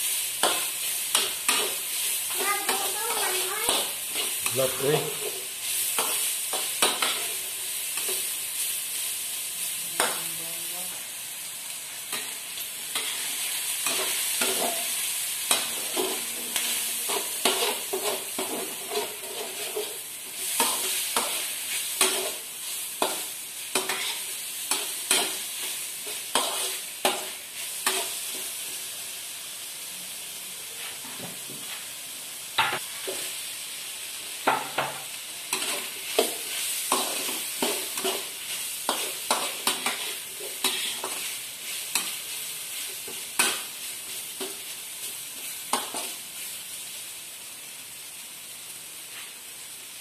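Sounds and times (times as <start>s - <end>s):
meat sizzling in a wok: 0.0s - 50.0s.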